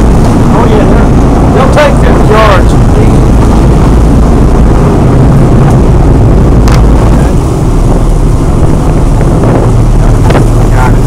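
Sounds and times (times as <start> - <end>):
boat engine: 0.0 - 11.0
rushing water: 0.0 - 11.0
wind buffeting microphone: 0.0 - 11.0.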